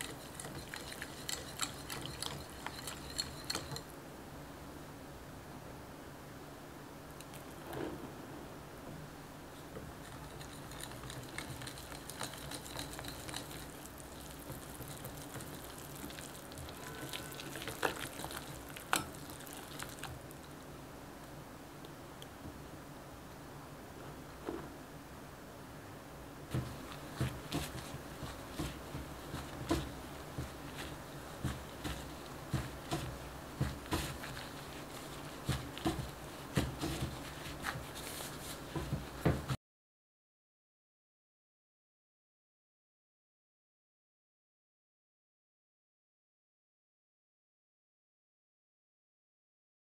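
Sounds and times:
whisk stirring in glass bowl: 0:00.0 - 0:03.9, 0:09.9 - 0:20.6, 0:26.5 - 0:39.5
hand squishing dough: 0:09.6 - 0:20.6, 0:26.5 - 0:39.6.

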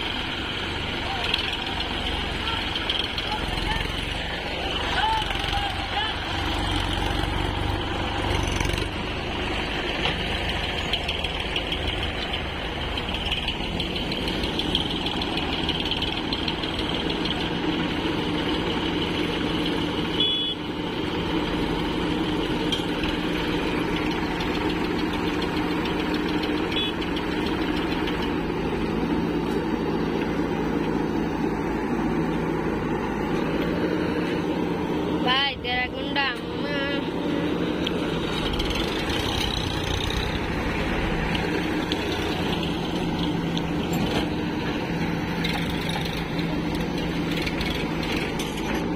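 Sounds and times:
backhoe loader working: 0:00.0 - 0:48.9
tractor engine hauling trailer: 0:00.0 - 0:48.9.

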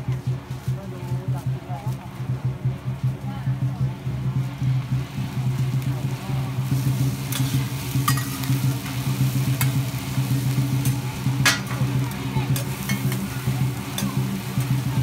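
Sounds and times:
omelette sizzling: 0:05.5 - 0:15.0
metal spatulas scraping on griddle: 0:07.2 - 0:08.6, 0:10.8 - 0:11.9, 0:12.5 - 0:14.9.

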